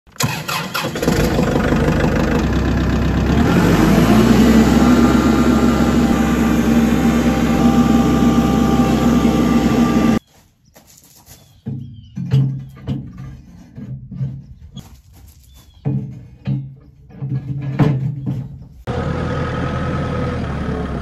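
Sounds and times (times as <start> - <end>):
engine starting and running: 0.1 - 10.2, 18.8 - 21.0.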